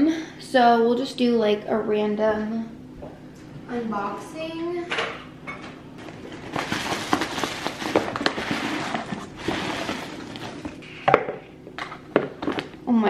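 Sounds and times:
cardboard box packing rustling: 6.0s - 10.8s.

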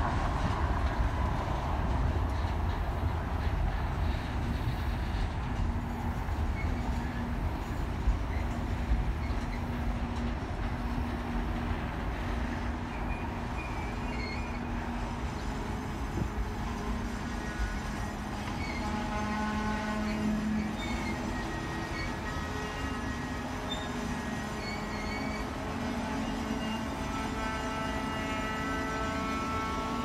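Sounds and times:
train wheels rumbling on rail: 0.0s - 30.0s
high wheel squeals: 5.9s - 9.8s, 12.5s - 16.2s, 16.8s - 30.0s.

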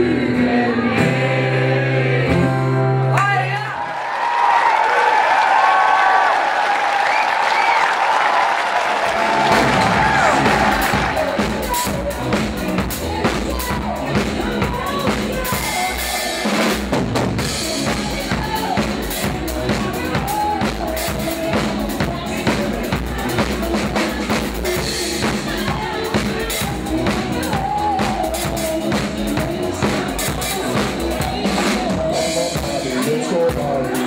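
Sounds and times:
drum kit beat: 8.8s - 34.0s.

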